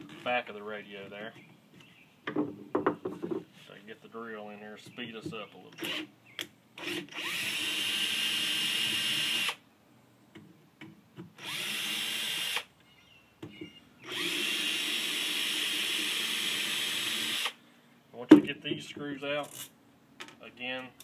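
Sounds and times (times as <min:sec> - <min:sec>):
cordless drill running: 0:06.8 - 0:09.6, 0:11.4 - 0:12.7, 0:14.1 - 0:17.6.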